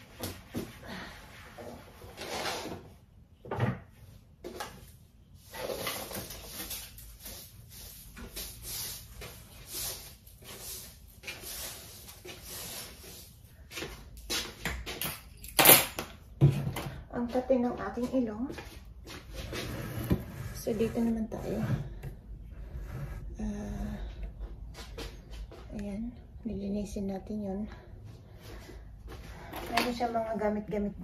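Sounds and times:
items rustling and scraping: 0.0s - 25.8s.

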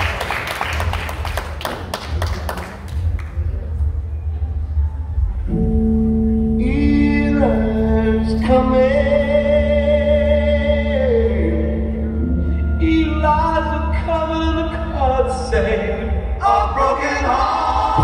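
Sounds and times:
steady drone note: 4.8s - 15.0s.

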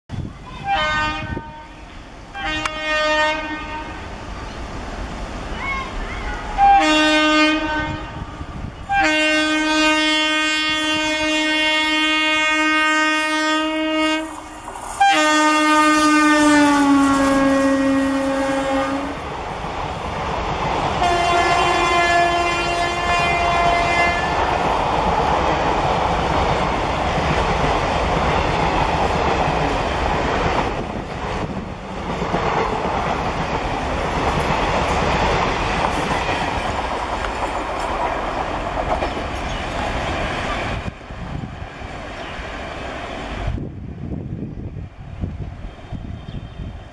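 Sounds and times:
locomotive air horn: 0.6s - 4.0s, 6.6s - 8.2s, 8.9s - 19.2s, 21.0s - 24.4s
train wheels rolling and clacking: 22.5s - 43.6s.

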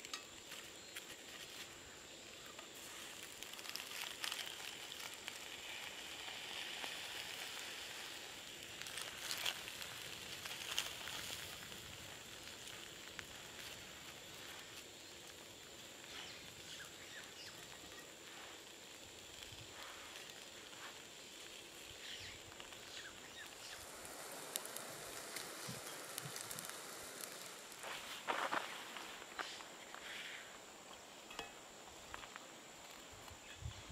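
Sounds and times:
fish sizzling in a skillet: 1.2s - 30.4s
tongs clinking on charcoal: 31.2s - 31.6s.

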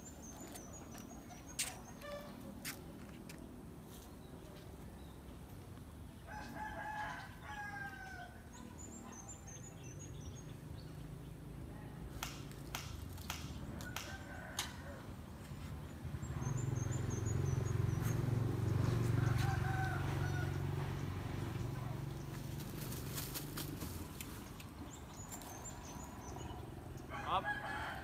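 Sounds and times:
small birds chirping: 0.0s - 6.2s, 8.2s - 14.5s, 15.4s - 19.5s, 20.3s - 27.2s
rooster crowing: 6.3s - 8.5s, 19.0s - 21.0s, 27.1s - 28.0s.

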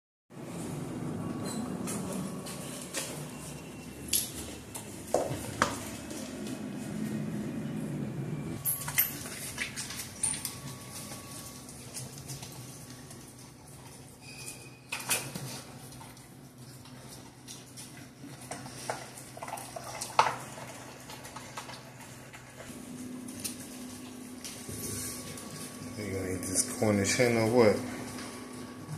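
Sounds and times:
dog chewing and licking: 8.8s - 14.2s, 15.3s - 25.9s.

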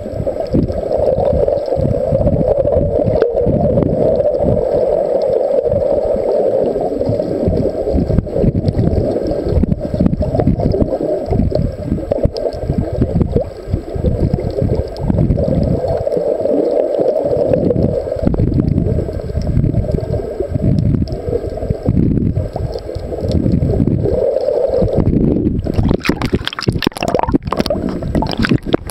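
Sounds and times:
underwater rushing and sloshing: 0.0s - 28.9s.

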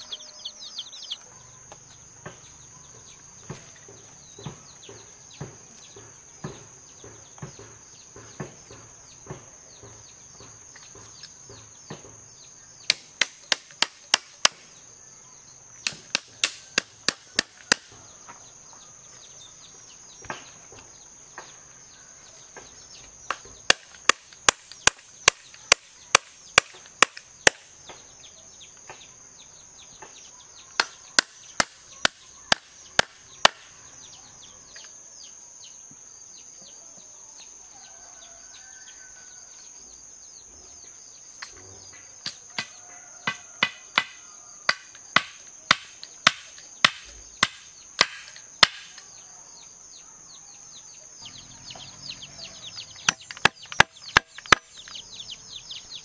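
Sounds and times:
chopping strikes: 42.3s - 49.0s.

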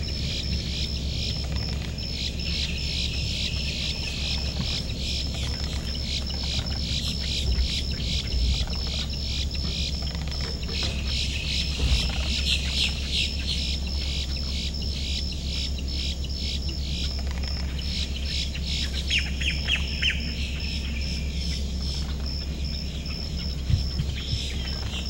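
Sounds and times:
low steady hum: 0.0s - 25.0s
wild birds chirping and calling: 0.0s - 25.0s.

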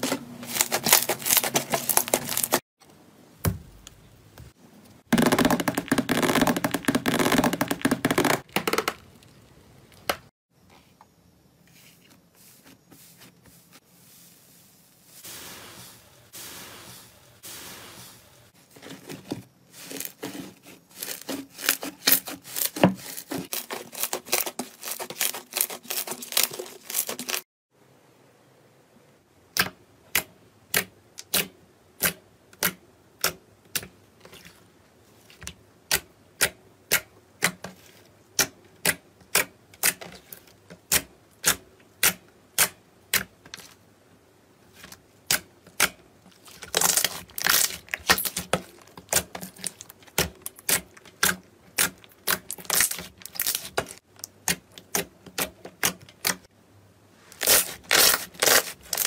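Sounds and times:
slime crackling: 46.3s - 56.4s, 57.4s - 59.0s.

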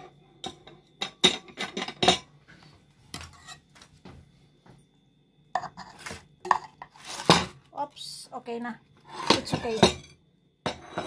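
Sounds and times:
metal spatula scraping glass dish: 3.1s - 3.7s.

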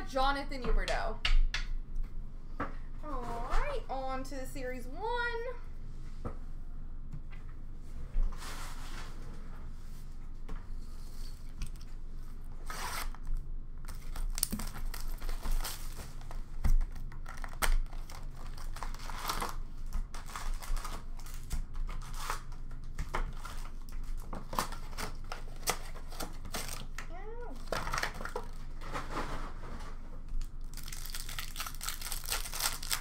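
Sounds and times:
wrapping and cardboard tearing: 12.6s - 33.0s.

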